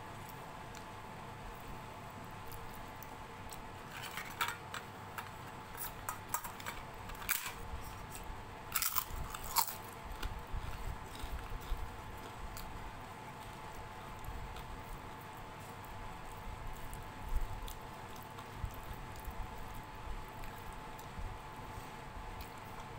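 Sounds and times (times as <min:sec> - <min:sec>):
crunchy bites and chewing: 0:07.1 - 0:21.4.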